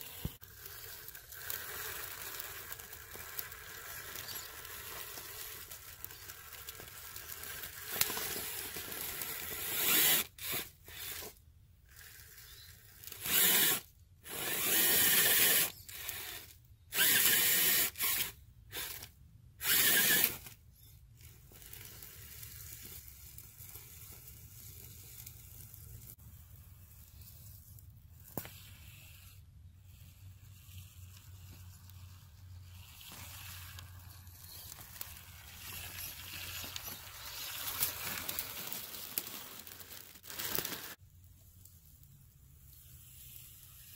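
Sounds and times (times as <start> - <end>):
rc car motor and gears whirring: 0.0 - 41.0, 41.7 - 43.9
tyres crunching over dry leaves: 0.4 - 11.3, 31.3 - 41.1.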